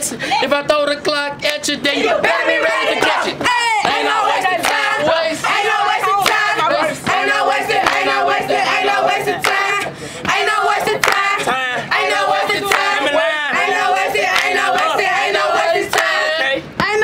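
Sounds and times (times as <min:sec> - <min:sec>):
young voices singing together: 0:01.5 - 0:17.0
clapped beat: 0:03.0 - 0:05.0, 0:06.0 - 0:08.2, 0:09.4 - 0:11.4, 0:12.6 - 0:13.0, 0:14.2 - 0:15.0, 0:15.9 - 0:16.2.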